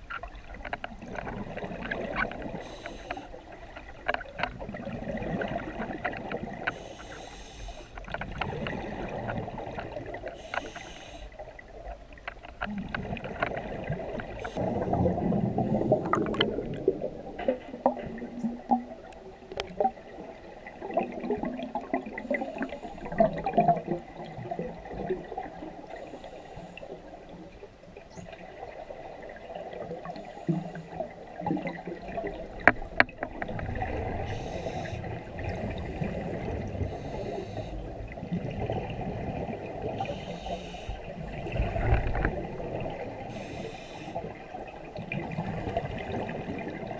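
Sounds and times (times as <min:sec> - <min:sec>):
hissing regulator inhalations: 0:02.6 - 0:03.4, 0:06.7 - 0:08.0, 0:10.3 - 0:11.4, 0:34.2 - 0:36.2, 0:36.9 - 0:37.9, 0:40.0 - 0:41.6, 0:43.3 - 0:44.3.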